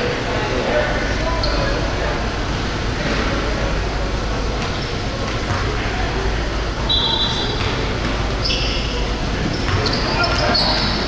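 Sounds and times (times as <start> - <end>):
busy indoor hall noise: 0.0 - 11.0.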